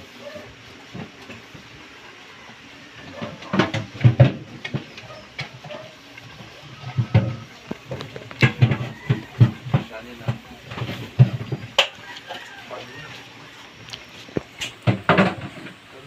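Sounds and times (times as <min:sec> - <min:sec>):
gas stove burner hissing: 0:00.0 - 0:16.0
sharp knocks and clatter: 0:03.1 - 0:12.0, 0:14.4 - 0:15.8.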